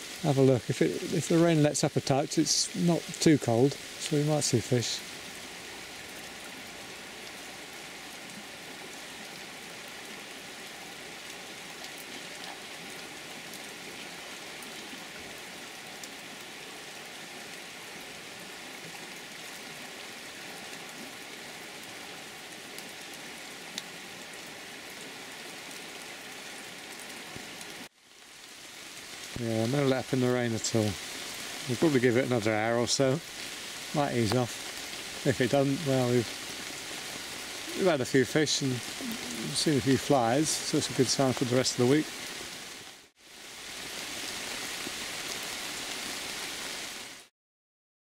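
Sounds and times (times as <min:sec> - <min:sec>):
rain falling on river and leaves: 0:00.0 - 0:47.3.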